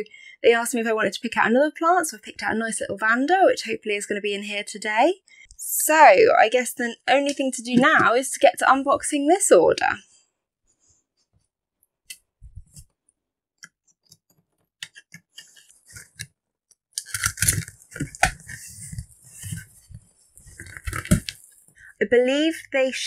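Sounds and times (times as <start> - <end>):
cardboard and paper rustling: 17.0 - 21.7.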